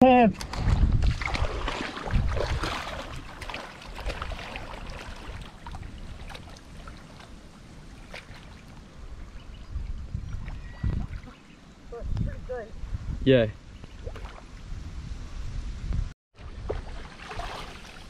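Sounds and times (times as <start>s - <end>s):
swimmer splashing in water: 16.7s - 18.0s.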